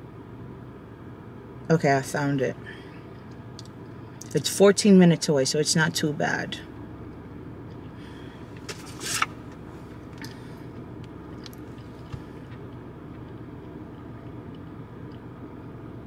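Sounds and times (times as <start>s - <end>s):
car cabin hum: 0.0s - 16.0s
rustling scrape: 8.6s - 9.9s.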